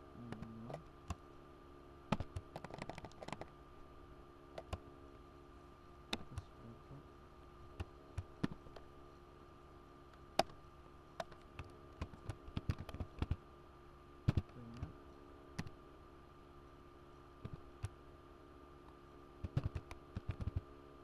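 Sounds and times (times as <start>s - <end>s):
keyboard keystroke clicks: 2.1s - 3.5s, 4.6s - 4.8s, 11.2s - 13.4s, 14.3s - 14.9s, 19.4s - 20.6s.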